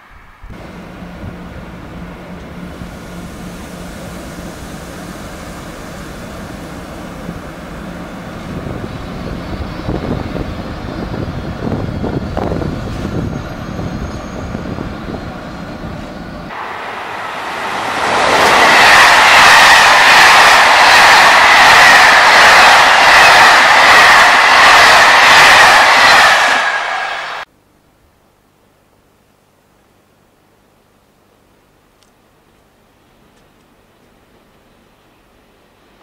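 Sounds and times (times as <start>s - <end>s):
freight train rumbling past: 0.0s - 27.5s
train rushing past closely: 0.0s - 27.5s.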